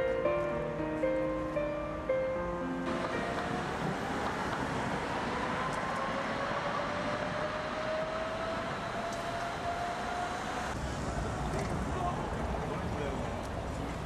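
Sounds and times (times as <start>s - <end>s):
tram rolling noise: 2.7s - 14.0s
tram motor whine: 2.8s - 10.8s.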